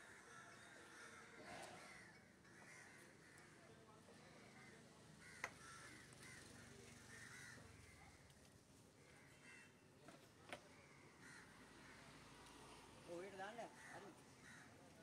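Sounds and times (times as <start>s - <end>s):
crows cawing: 0.0s - 3.6s, 4.5s - 7.9s, 9.1s - 9.8s, 10.7s - 12.0s, 13.7s - 14.9s.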